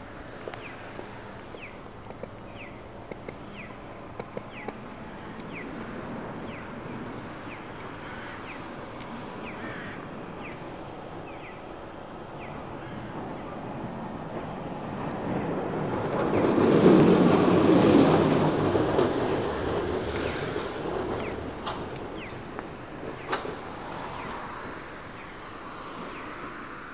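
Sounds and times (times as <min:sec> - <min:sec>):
traffic hum: 0:00.0 - 0:26.9
tram passing on rails: 0:00.0 - 0:26.9
sharp clicks: 0:02.0 - 0:05.9.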